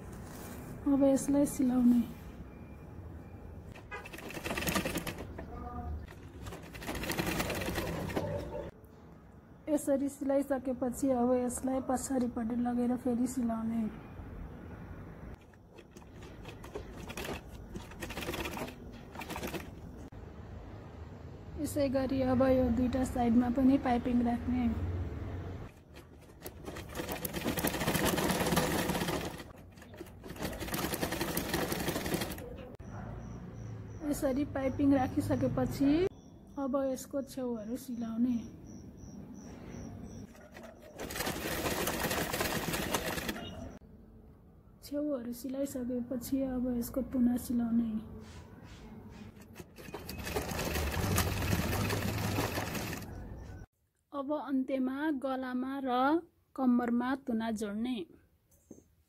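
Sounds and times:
sewing machine stitching: 3.8 - 5.5, 6.1 - 8.7, 15.4 - 20.0, 25.7 - 32.8, 40.2 - 43.8, 49.2 - 53.6.

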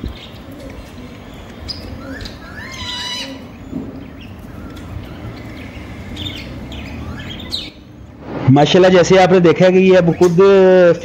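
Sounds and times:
baby bird begging calls: 2.0 - 3.6.

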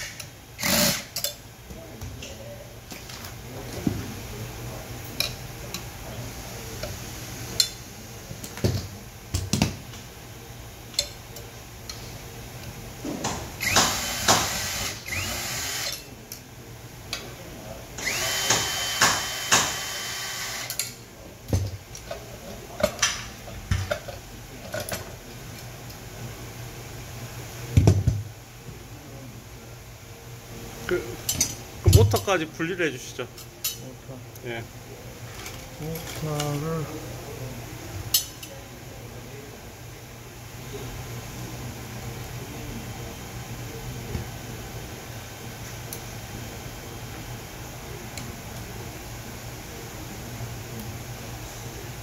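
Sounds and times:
cordless drill whining: 0.6 - 1.1, 13.6 - 15.9, 18.0 - 20.7.

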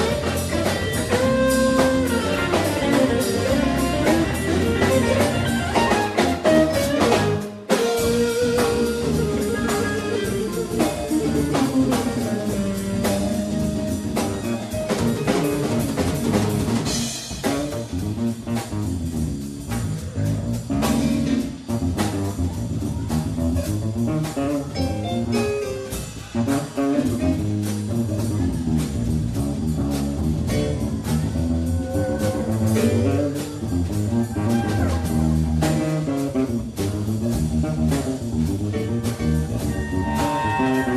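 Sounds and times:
live blues-funk band: 0.0 - 40.9.

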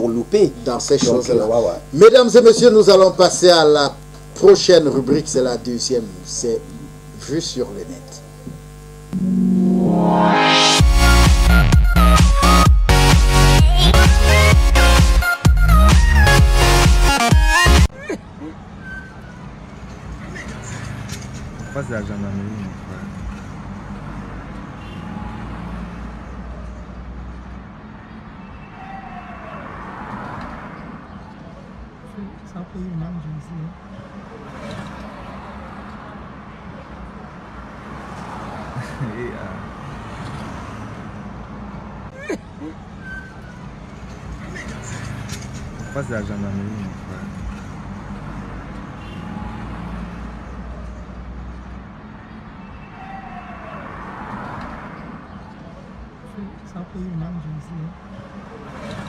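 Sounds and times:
street hiss: 0.0 - 17.9
street traffic: 0.0 - 59.0
vehicle engine rumbling: 17.8 - 24.8, 41.1 - 49.2.

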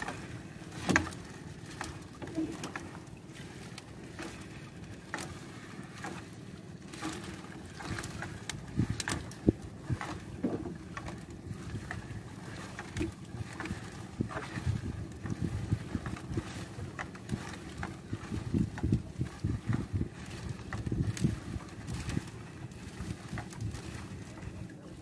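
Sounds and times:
knocks and clatter in boat: 0.0 - 25.0.

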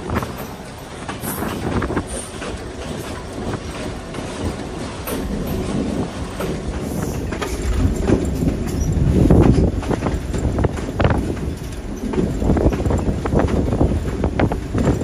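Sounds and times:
locomotive running noise: 0.0 - 15.0
wheels clattering over rail joints: 0.0 - 15.0.

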